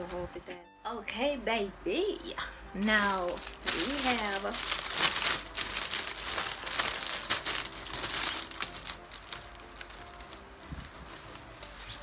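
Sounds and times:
plastic packaging crinkling: 0:03.0 - 0:12.0.

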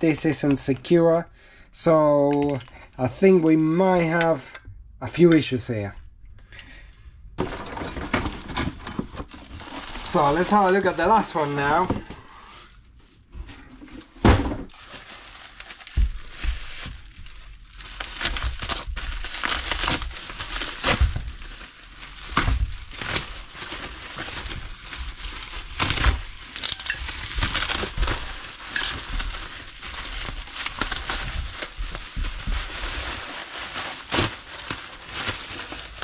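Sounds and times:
bubble wrap crinkling: 0:09.0 - 0:13.3, 0:14.7 - 0:36.0
sharp crackles and crunches: 0:14.7 - 0:36.0.

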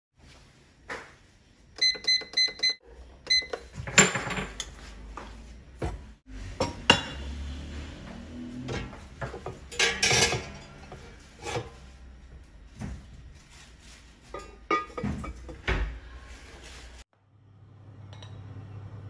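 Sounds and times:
air fryer beeping: 0:01.8 - 0:03.8.

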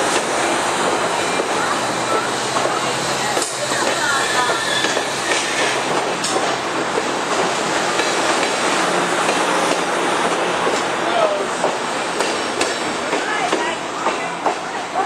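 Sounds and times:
train wheels rolling on rail: 0:00.0 - 0:15.0
faint wheel squeal: 0:04.1 - 0:05.8.

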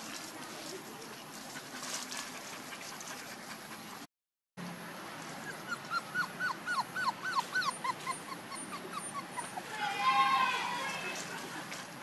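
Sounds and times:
puppies whimpering: 0:05.4 - 0:09.7.

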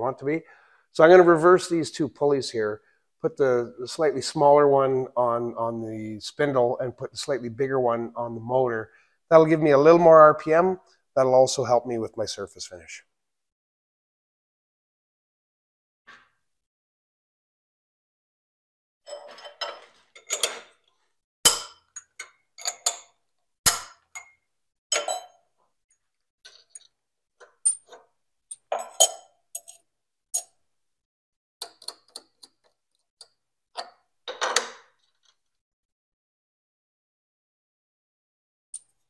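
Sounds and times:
metal pulley parts clinking: 0:25.0 - 0:25.3.

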